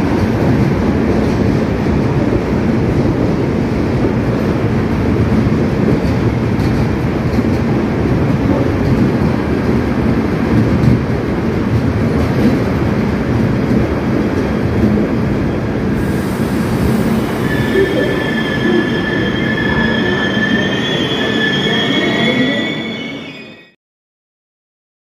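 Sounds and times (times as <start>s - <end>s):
train wheels rumbling on rails: 0.0s - 23.2s
high metallic brake squeal: 17.0s - 23.8s.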